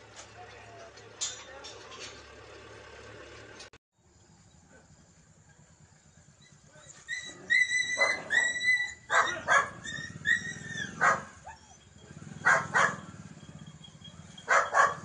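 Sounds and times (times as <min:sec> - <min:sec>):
motorcycle engine running: 0:00.0 - 0:15.0
dog yelping: 0:06.5 - 0:15.0
dog barking: 0:07.9 - 0:09.8, 0:10.8 - 0:13.2, 0:14.3 - 0:15.0.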